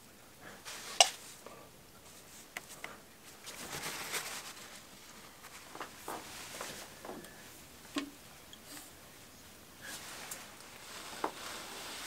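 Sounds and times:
rag rubbing over plastic pipe: 9.9 - 12.0.

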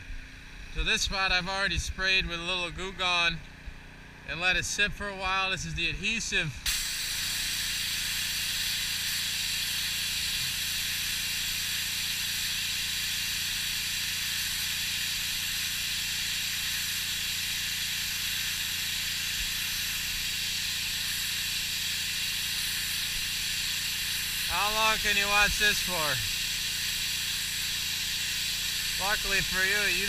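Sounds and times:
pressure washer spraying water: 6.6 - 30.0
washer motor humming: 6.7 - 30.0.

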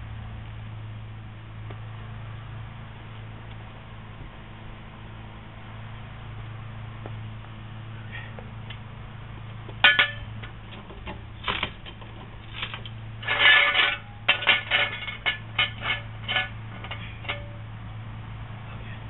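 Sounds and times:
metal jack stand clanking on concrete: 9.8 - 17.7.

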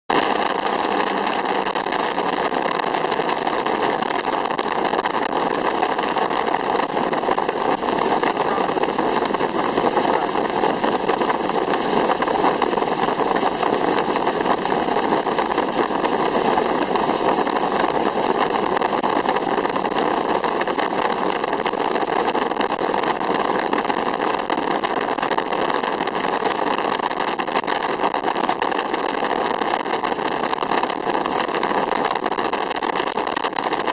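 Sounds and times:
gyrocopter in-flight noise: 0.1 - 33.9.

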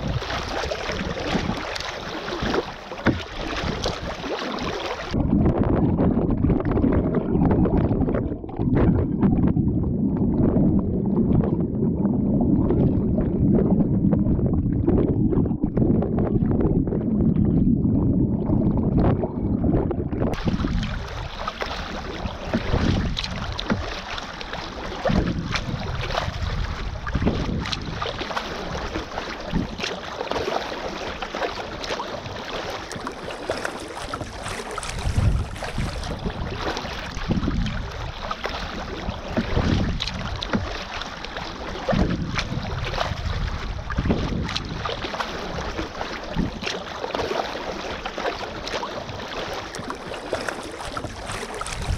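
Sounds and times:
water splashing along kayak hull: 0.0 - 51.9.

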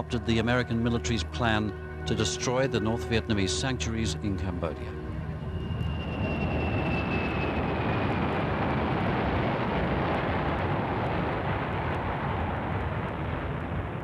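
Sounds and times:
high engine whine: 0.0 - 14.0
jet engines running: 3.6 - 14.0.

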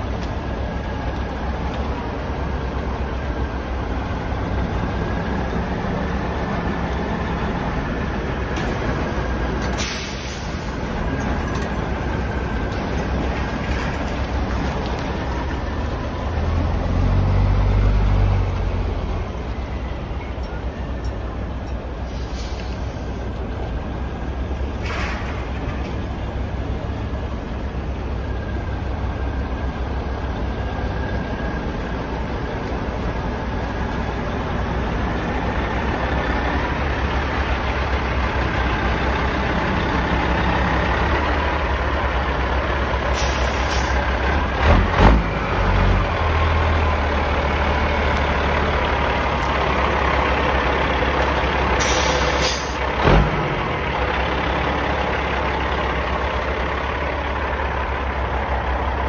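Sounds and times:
truck diesel engine running low: 0.0 - 59.0
air hiss: 9.8 - 10.9, 22.0 - 23.2, 43.1 - 44.0, 51.8 - 52.8.

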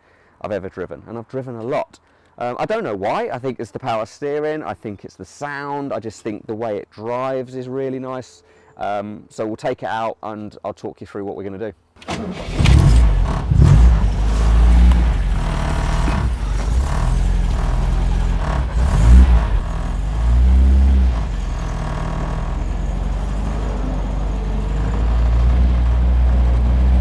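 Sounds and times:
car engine revving: 12.2 - 27.0.

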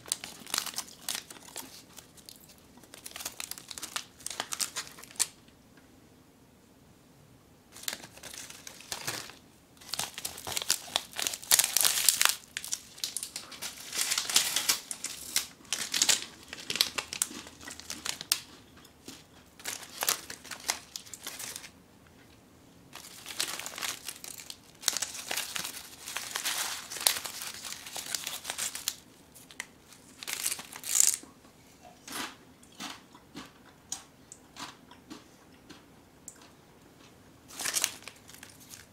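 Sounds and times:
snack wrappers crinkling: 0.0 - 5.4, 7.7 - 21.8, 23.0 - 31.2, 36.4 - 38.9.

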